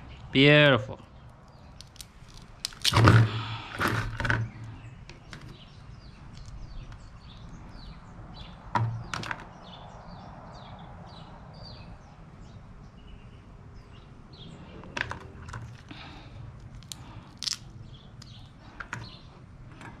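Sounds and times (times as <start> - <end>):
crab shell crunching and cracking: 1.4 - 4.3, 6.3 - 7.5, 15.6 - 18.8.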